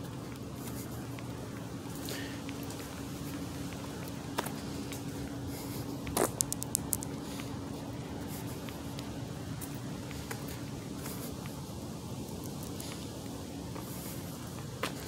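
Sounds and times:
footsteps on road: 0.0s - 15.0s
steady low hum: 0.0s - 15.0s
camera handling noise: 6.2s - 7.1s
sharp clicks: 6.2s - 7.1s.

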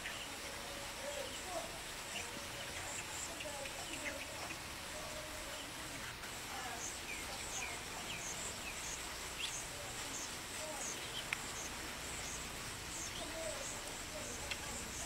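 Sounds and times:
birds chirping: 0.0s - 15.0s
steady hiss: 0.0s - 15.0s
high insect pulse: 6.8s - 15.0s.

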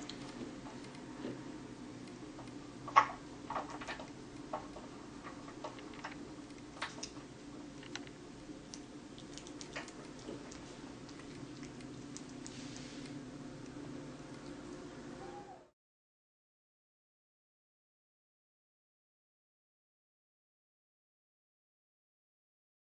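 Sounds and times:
kitten licking and chewing: 0.0s - 3.0s, 5.1s - 14.9s
steady low hum: 0.0s - 15.7s.

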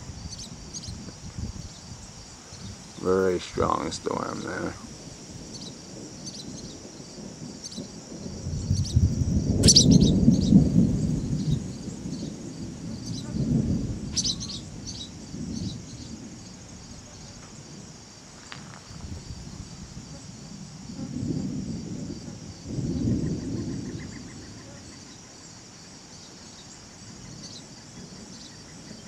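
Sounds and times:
thunder rumbling: 0.0s - 25.2s, 27.0s - 29.0s
insects trilling: 0.0s - 29.0s
bird chirps: 9.6s - 10.6s, 14.1s - 16.1s.

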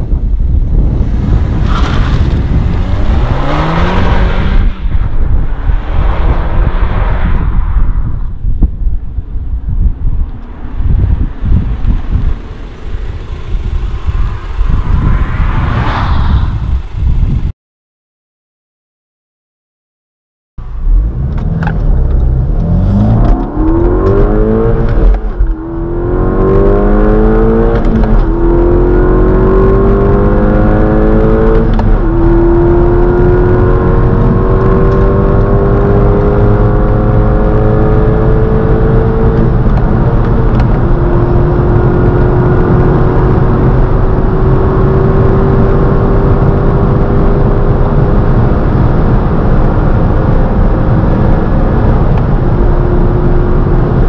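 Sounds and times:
road and wind noise: 0.0s - 17.5s, 20.6s - 54.0s
car engine accelerating through gears: 0.6s - 7.6s, 20.7s - 54.0s.

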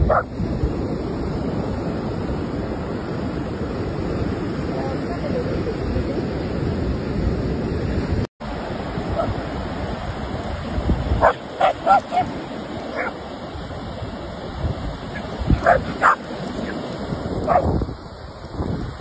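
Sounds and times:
dogs barking: 0.0s - 0.3s, 11.2s - 13.2s, 15.1s - 16.8s, 17.4s - 17.8s
surf washing: 0.0s - 19.0s
wind rumble on microphone: 0.0s - 19.0s.

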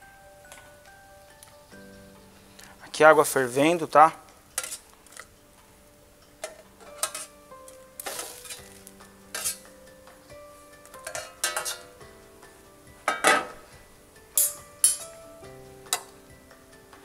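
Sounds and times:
soft background music: 0.0s - 17.0s
metal skimmer scraping steel: 6.4s - 7.4s, 8.0s - 9.7s.

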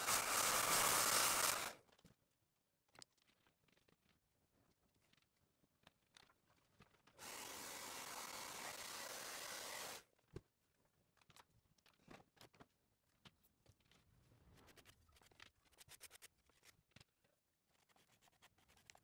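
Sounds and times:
electric blower blowing air: 0.0s - 1.8s, 7.2s - 10.0s.

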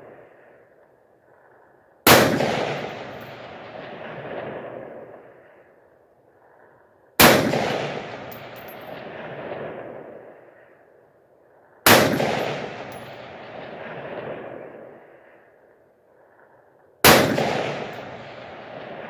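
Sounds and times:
rifle shots with echo: 2.0s - 5.6s, 7.2s - 10.6s, 11.8s - 15.2s, 17.0s - 19.0s.

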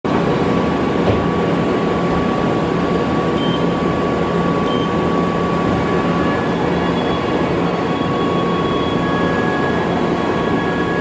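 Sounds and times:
machining center running: 0.1s - 11.0s
thin high whine: 3.3s - 11.0s.

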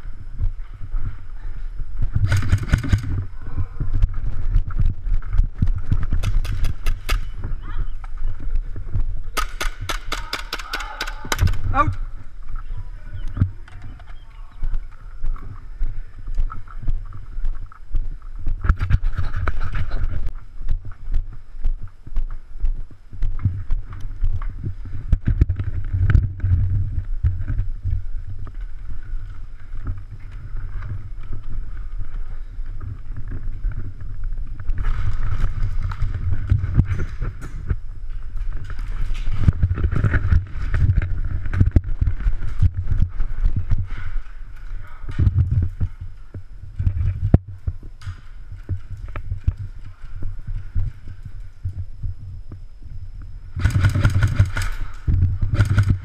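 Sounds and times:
low rumble: 0.0s - 10.1s
footsteps: 0.0s - 51.9s.

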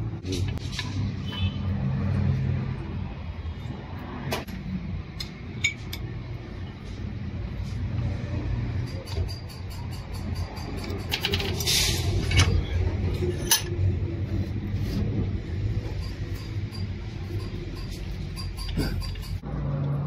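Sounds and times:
metal parts clicking and clinking: 8.7s - 13.8s, 15.9s - 19.4s
steady low rumble: 11.9s - 19.4s.

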